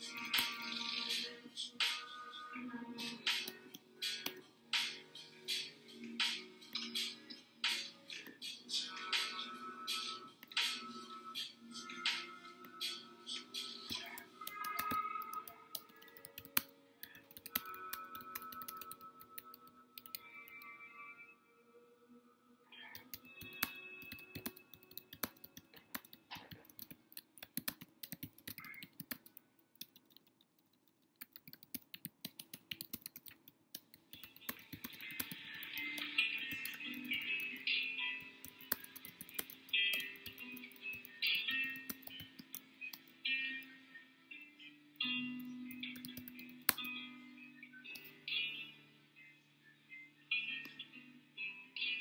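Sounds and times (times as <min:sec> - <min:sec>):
lofi hip hop music: 0:00.0 - 0:19.4, 0:34.2 - 0:47.3
computer keyboard typing: 0:13.9 - 0:20.2, 0:22.9 - 0:43.1, 0:45.9 - 0:46.8.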